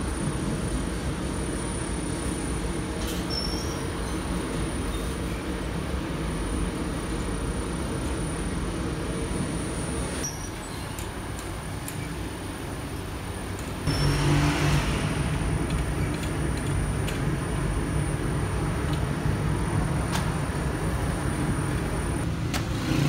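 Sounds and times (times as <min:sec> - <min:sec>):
machine motor and rollers: 0:13.5 - 0:23.0
faint high whine: 0:13.9 - 0:22.2.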